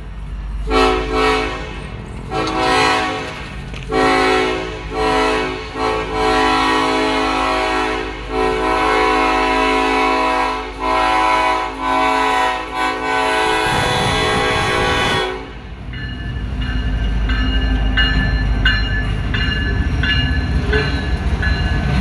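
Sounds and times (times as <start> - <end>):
train rumbling: 0.0 - 22.0
locomotive air horn blasts: 0.6 - 15.7.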